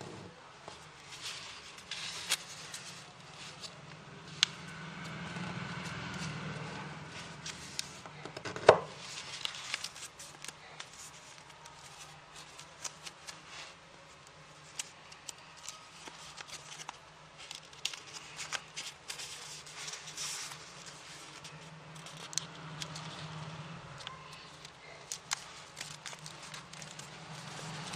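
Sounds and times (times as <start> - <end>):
paper being folded and creased: 0.8 - 27.9.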